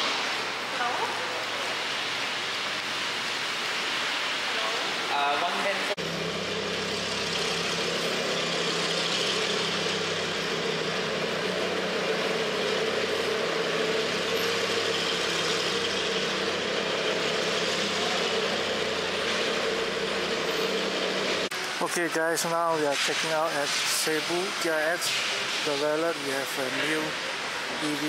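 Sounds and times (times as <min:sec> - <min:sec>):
car engine idling: 0:06.0 - 0:21.7.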